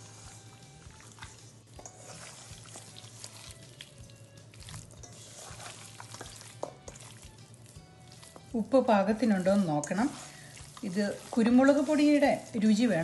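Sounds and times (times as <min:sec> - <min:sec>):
wet squishing of kneaded meat: 0:00.0 - 0:13.0
clicks and taps against a bowl: 0:06.2 - 0:07.0.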